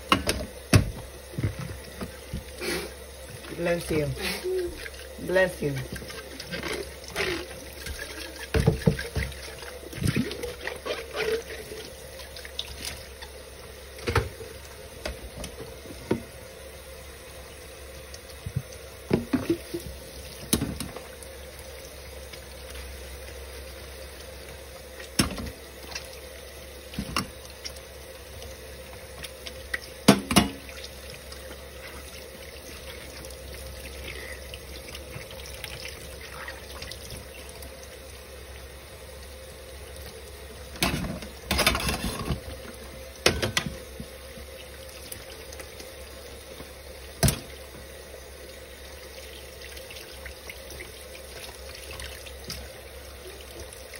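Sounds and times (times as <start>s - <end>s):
dishes knocking and clattering: 0.0s - 2.4s, 7.8s - 9.4s, 19.1s - 19.8s, 30.1s - 30.6s, 40.8s - 42.5s, 43.2s - 44.1s
faucet running into sink: 0.0s - 16.5s, 17.3s - 53.9s
dishes being scrubbed: 4.6s - 13.0s.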